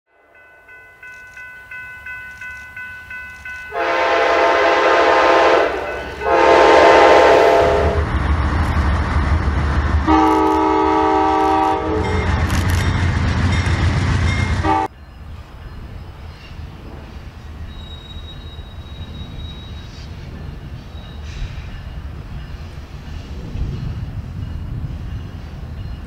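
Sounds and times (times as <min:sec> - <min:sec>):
passing train rumble: 0:00.1 - 0:26.0
bell ringing: 0:00.2 - 0:04.2
locomotive air horn blasts: 0:03.7 - 0:08.0, 0:10.1 - 0:12.3, 0:14.6 - 0:14.9.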